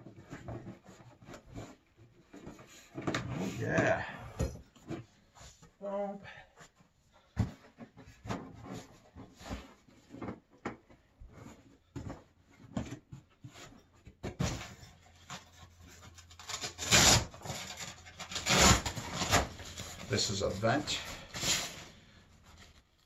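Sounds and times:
fabric and plastic rustling: 17.4 - 23.0.

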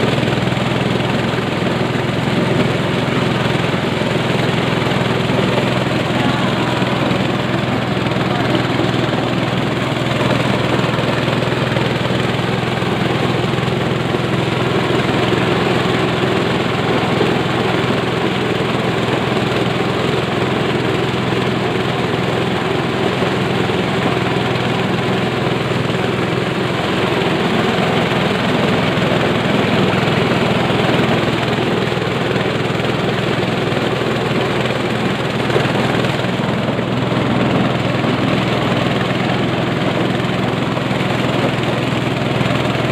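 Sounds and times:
corn sheller engine drone: 0.0 - 42.9.

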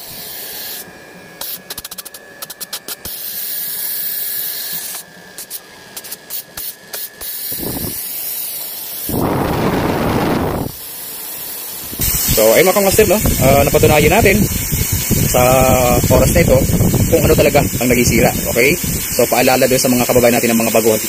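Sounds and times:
faint steady whine: 0.0 - 21.0
hiss of moving air: 7.3 - 20.0
loud rush of air: 7.5 - 8.0, 9.0 - 10.8, 11.7 - 19.3.

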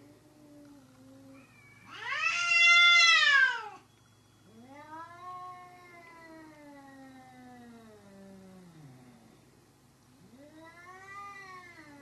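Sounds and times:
cat yowling: 1.3 - 3.8.

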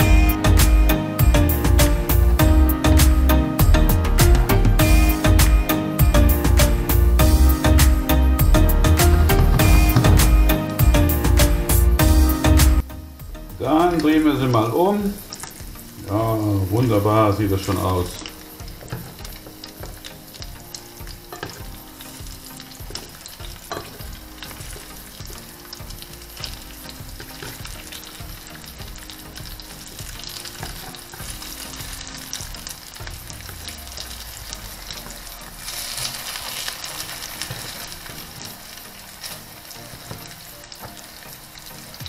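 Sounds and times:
patties sizzling in a frying pan: 12.0 - 42.0
utensils scraping and tapping pan: 18.2 - 20.1, 21.3 - 21.7, 22.9 - 24.1, 35.8 - 38.6.

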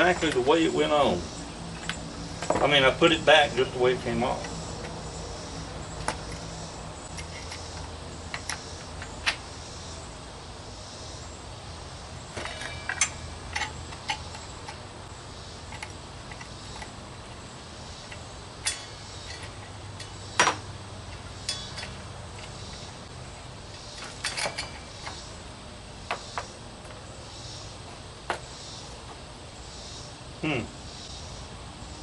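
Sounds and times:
metallic clicks and clinks: 12.4 - 14.8, 21.1 - 22.8.

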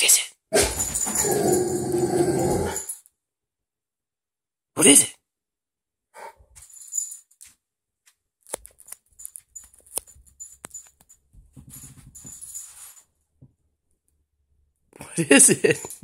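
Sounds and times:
puppy claws tapping and clicking: 8.4 - 12.4.

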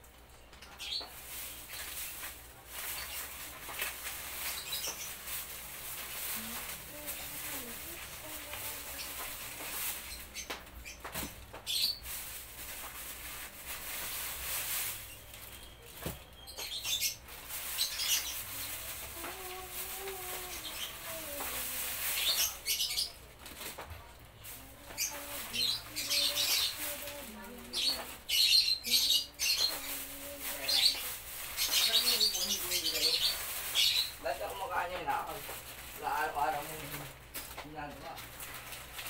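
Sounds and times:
birds chirping: 0.4 - 38.4.

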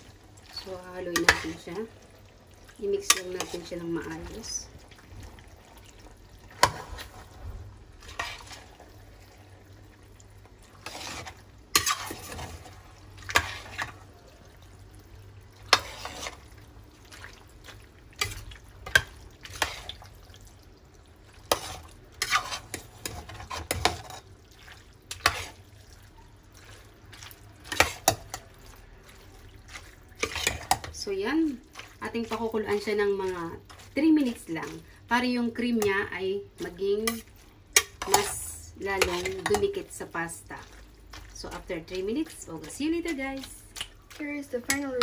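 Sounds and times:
utensil scraping metal pot: 0.6 - 1.9, 2.8 - 4.6, 6.5 - 8.8, 10.7 - 14.0, 15.6 - 16.5, 18.2 - 20.0, 21.5 - 24.3, 25.1 - 25.6, 27.6 - 34.9, 36.6 - 45.0.

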